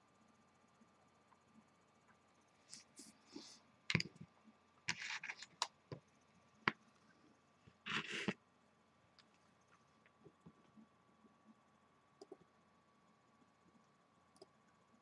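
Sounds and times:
rustling scrapes: 7.8s - 8.4s.

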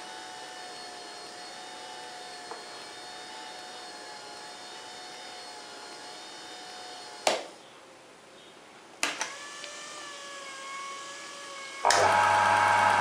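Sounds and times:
lathe motor whining: 9.3s - 13.0s.

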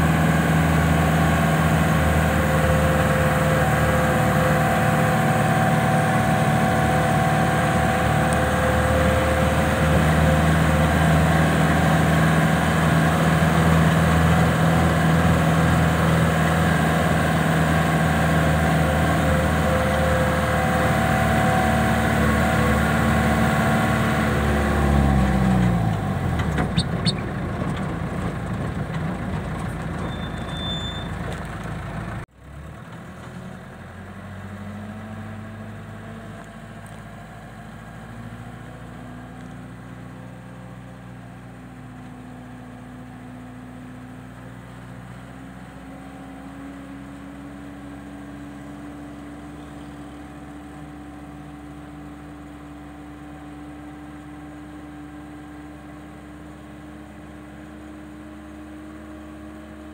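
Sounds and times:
road noise: 0.0s - 59.9s
vehicle engine running: 0.0s - 59.9s.

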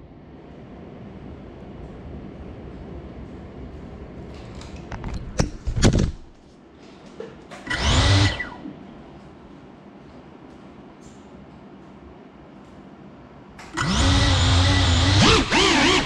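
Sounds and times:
mechanical whir sweeping pitch: 13.8s - 16.0s.

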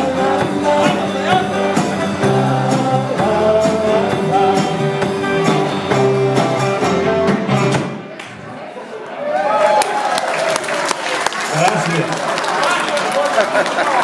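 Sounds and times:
person singing: 0.0s - 7.8s
rock band playing: 0.0s - 8.1s.

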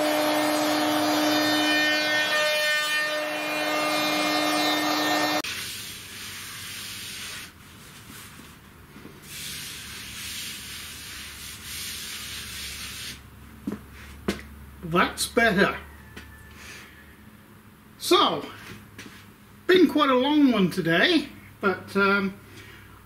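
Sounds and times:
router spindle whine: 0.0s - 5.4s.

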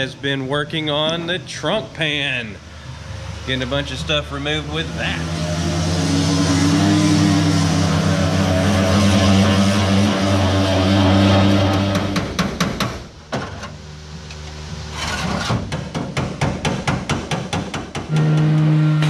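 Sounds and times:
electric orbital sander: 4.7s - 12.3s.

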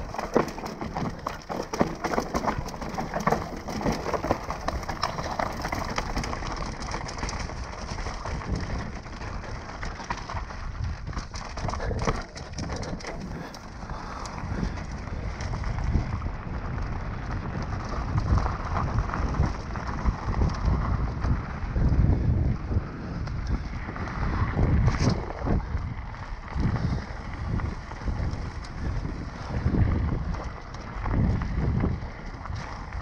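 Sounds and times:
bike rattling and clicking: 0.0s - 33.0s
bike tyres crunching over rocks: 0.0s - 33.0s
wind on microphone: 10.7s - 33.0s.

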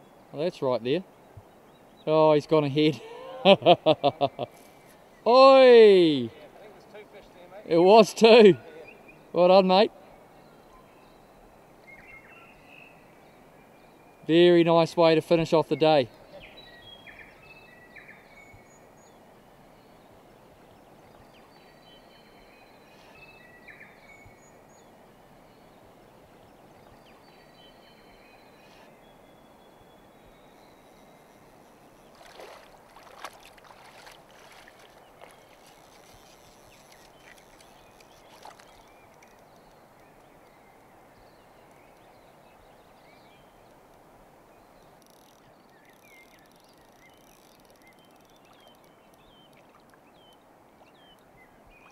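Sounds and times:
river water rushing: 32.1s - 36.1s.

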